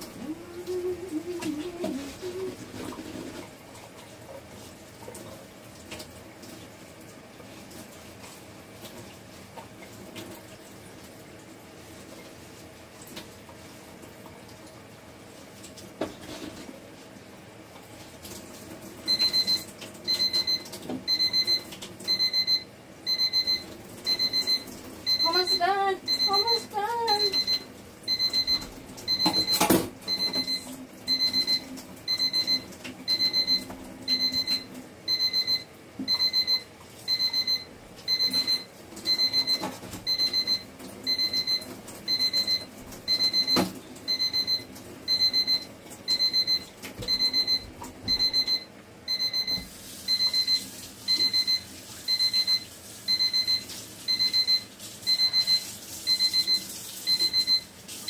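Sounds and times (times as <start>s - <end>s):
timer alarm beeping: 19.1s - 57.7s.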